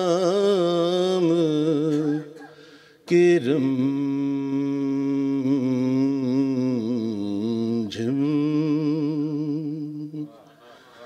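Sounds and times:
man singing devotional song: 0.0 - 11.0.

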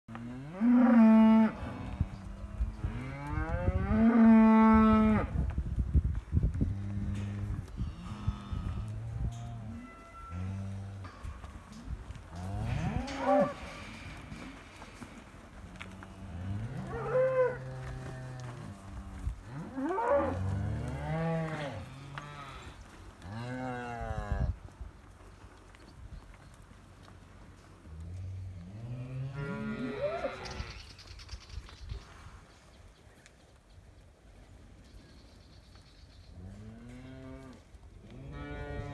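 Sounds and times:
cattle mooing: 29.0 - 30.8.

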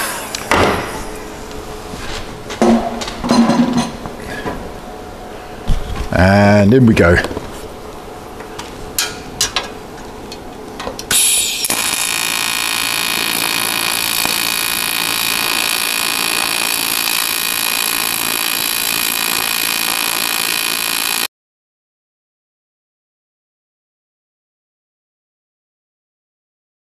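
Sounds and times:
welding arc buzzing hiss: 0.0 - 2.0, 11.0 - 21.3.

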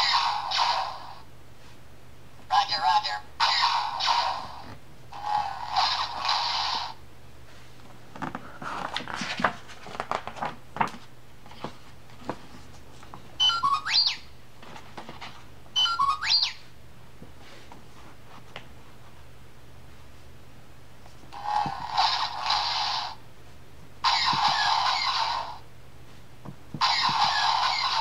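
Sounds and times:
paper pages rustling: 8.2 - 13.2.

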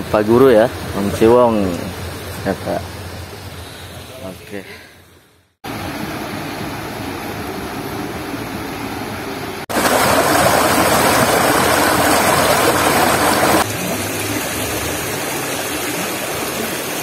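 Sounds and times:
stream rushing over rocks: 9.7 - 17.0.

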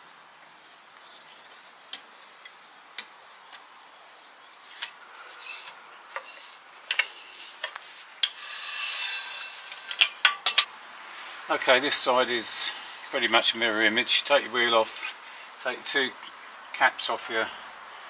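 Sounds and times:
short scraping noise: 8.3 - 10.1.

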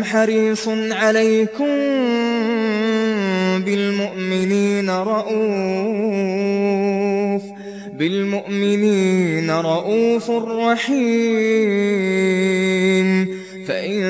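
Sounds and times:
person chanting recitation: 0.0 - 14.0.

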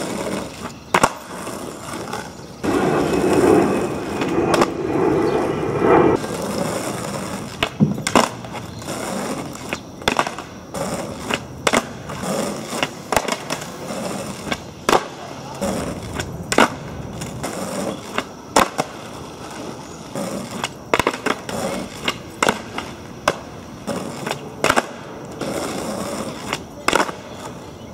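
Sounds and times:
skateboard clacks and landing slaps: 0.0 - 2.3, 7.0 - 19.1, 20.1 - 27.7
skateboard wheels rolling on asphalt: 0.0 - 27.9.

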